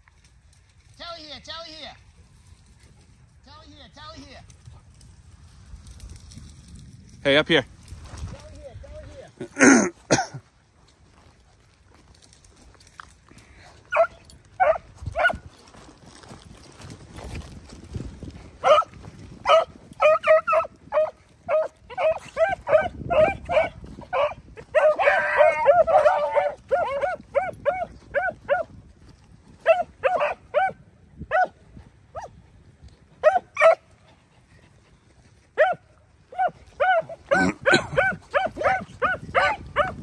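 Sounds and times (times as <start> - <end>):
hounds yelping barks: 13.9 - 15.4, 18.6 - 28.7, 29.6 - 32.3, 33.2 - 34.0, 35.6 - 40.0.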